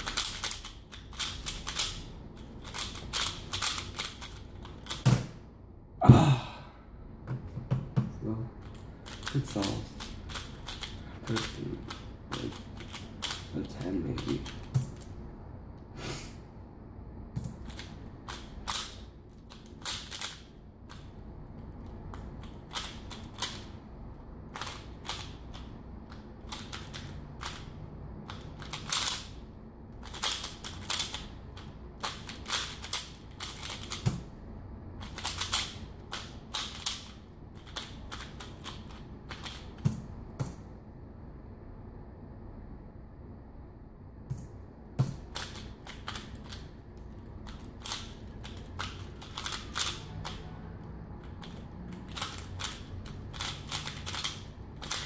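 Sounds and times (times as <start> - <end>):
puzzle cube layers clicking: 0.0 - 5.3, 8.6 - 15.1, 17.4 - 21.2, 24.5 - 27.7, 28.3 - 29.4, 30.0 - 34.2, 35.0 - 40.0, 45.0 - 50.4, 51.2 - 55.0.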